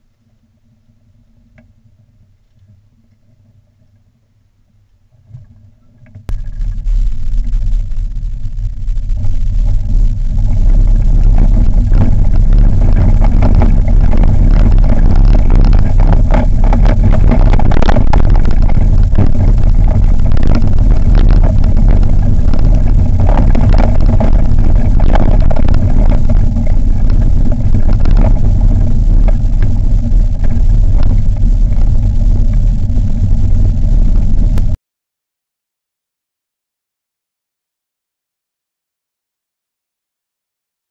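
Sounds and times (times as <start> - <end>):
cart rumbling over tarmac: 6.3 - 34.8.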